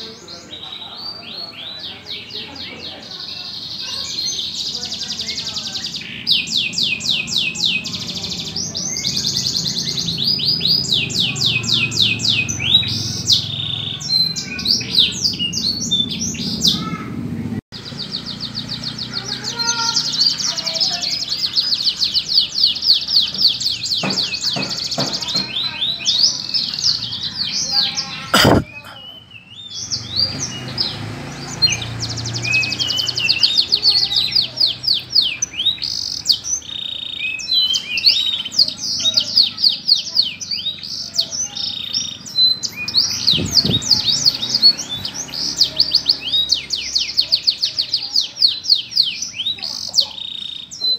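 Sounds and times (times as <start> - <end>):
canary singing trills: 0.0 - 50.9
sharp knock: 28.4 - 28.7.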